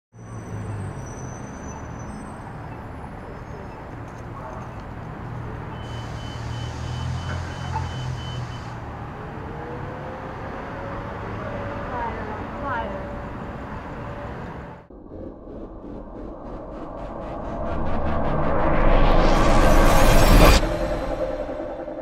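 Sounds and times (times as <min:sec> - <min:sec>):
traffic rumble of engines and tyres: 0:00.1 - 0:14.9
louder engine hum: 0:04.3 - 0:22.0.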